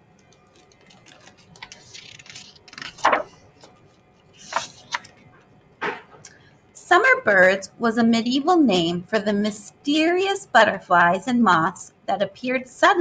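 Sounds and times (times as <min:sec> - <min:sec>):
book pages turning: 0:00.2 - 0:06.2
paper rustling: 0:00.2 - 0:06.2.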